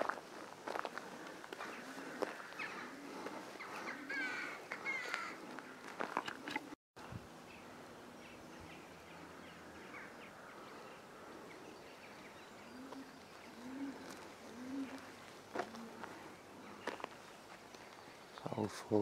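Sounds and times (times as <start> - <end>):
footsteps crunching on gravel: 0.0 - 3.9, 4.8 - 6.5, 14.0 - 18.6
birds calling: 0.0 - 19.0.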